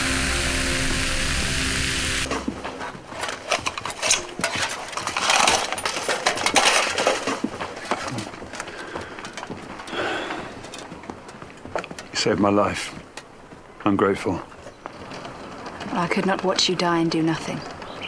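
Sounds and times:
music: 0.0s - 2.3s
hard objects clattering: 2.3s - 12.3s.

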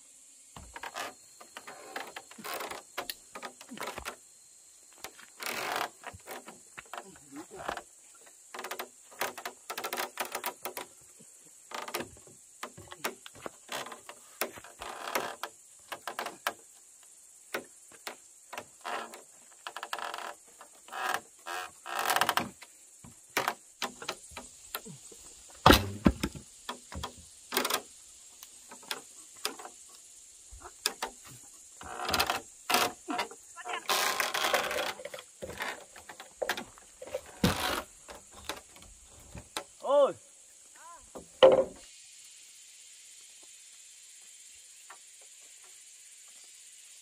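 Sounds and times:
wood knocking on wood: 41.1s - 41.8s.

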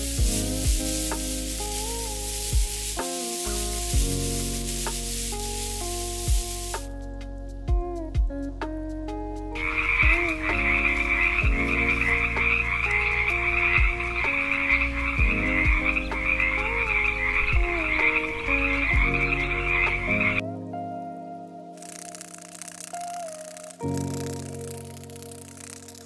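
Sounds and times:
gentle background music: 0.0s - 26.0s
frogs croaking: 9.6s - 20.4s.

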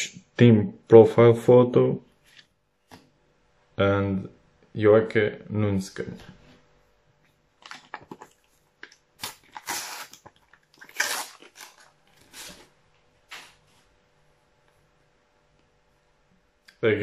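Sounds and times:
wrapper crinkling and tearing: 7.6s - 12.7s.

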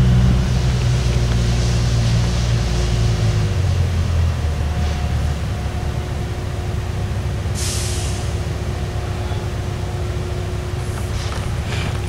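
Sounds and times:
train rumbling: 0.0s - 12.0s
air release hiss: 7.6s - 8.4s.

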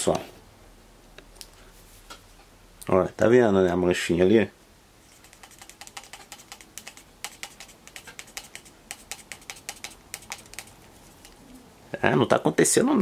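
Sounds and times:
toothpick scrubbing plastic: 5.1s - 11.4s.

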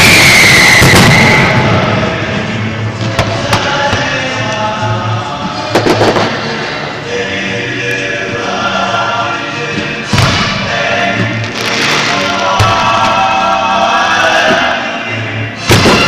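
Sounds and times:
fireworks bangs: 0.0s - 4.5s, 5.6s - 6.7s, 10.1s - 13.4s, 15.6s - 16.0s
music playing: 0.0s - 16.0s.

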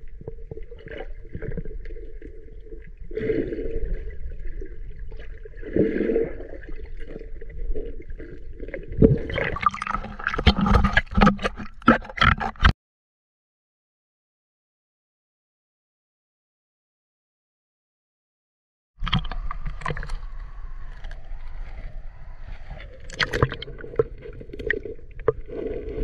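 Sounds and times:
water bubbling: 0.0s - 12.5s, 19.0s - 26.0s
water splashing on camera: 8.8s - 12.7s, 19.0s - 26.0s
muffled underwater gurgling: 19.0s - 26.0s.

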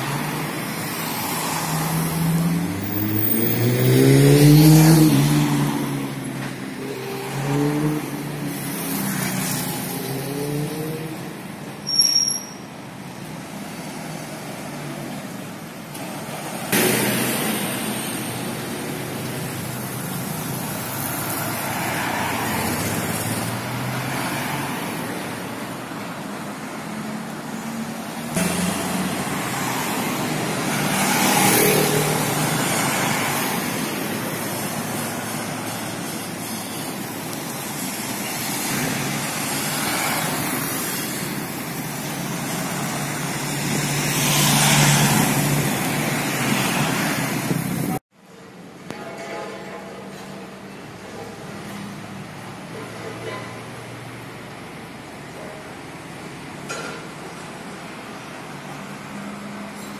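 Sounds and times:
passing cars rushing: 0.0s - 11.4s, 16.5s - 48.0s.

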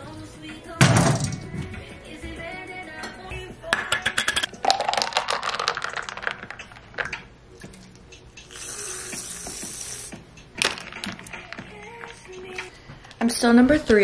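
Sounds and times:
ice clinking: 4.2s - 7.2s
milk pouring over ice: 4.5s - 7.1s
whipped cream can hissing: 8.5s - 10.2s.

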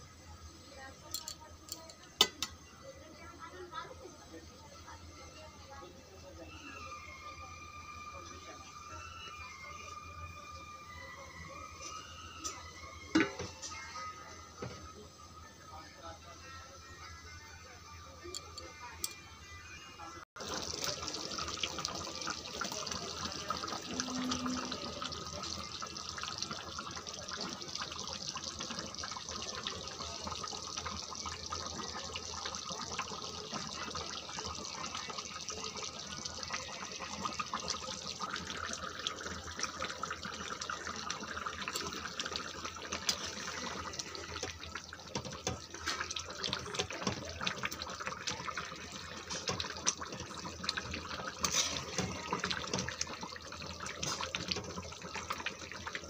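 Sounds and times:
curry simmering and bubbling: 20.4s - 56.0s.

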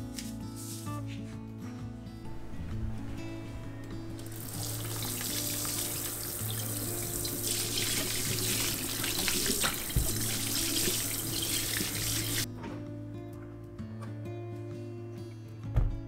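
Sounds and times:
soft background music: 0.0s - 16.0s
water splashing off melon: 4.3s - 12.4s
faucet running into steel sink: 4.3s - 12.5s.

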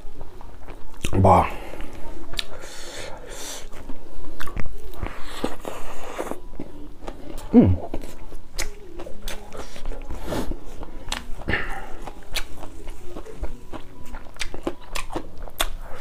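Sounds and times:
person chewing food: 0.0s - 16.0s
person humming softly: 7.3s - 8.1s.

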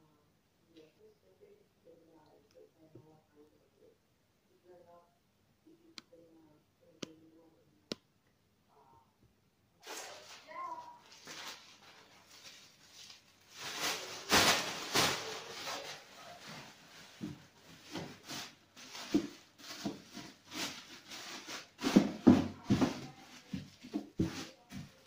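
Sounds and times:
plastic bag rustling: 9.8s - 25.0s.

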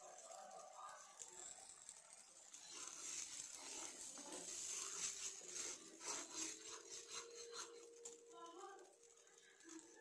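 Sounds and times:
sauce simmering with soft hiss: 0.0s - 10.0s
spoon scraping pan: 2.7s - 9.2s.

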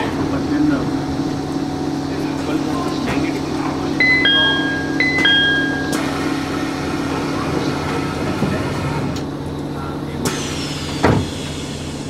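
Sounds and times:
train electrical hum: 0.0s - 12.0s
two-tone door chime: 4.0s - 6.7s.

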